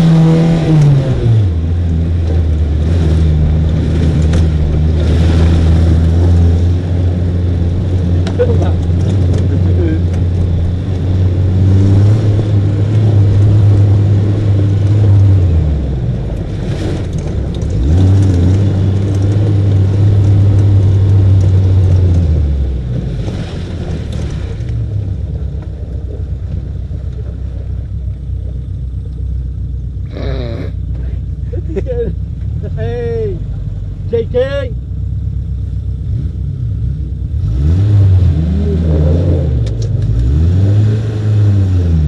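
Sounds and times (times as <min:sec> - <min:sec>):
buggy engine droning under load: 0:00.0 - 0:42.0.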